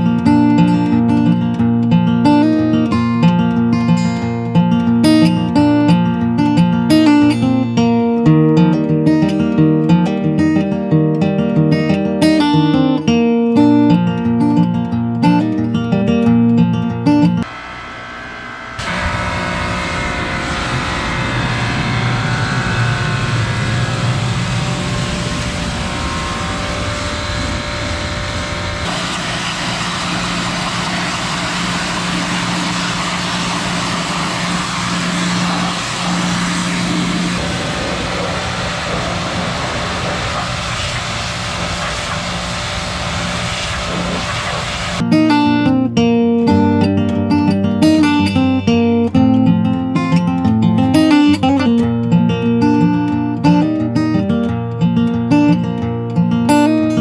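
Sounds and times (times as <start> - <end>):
pressure washer humming: 17.4 - 45.1
water spray hissing on metal: 28.9 - 45.0.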